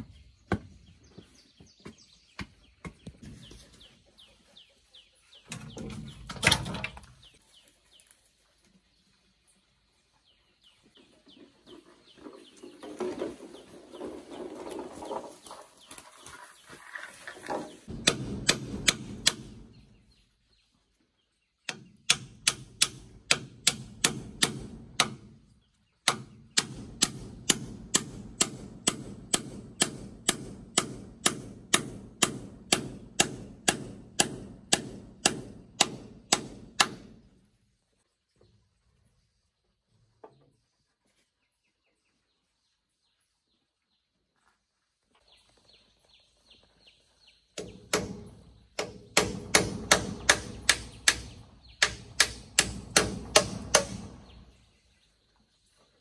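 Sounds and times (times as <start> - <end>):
rustling and scraping: 10.8 - 17.9.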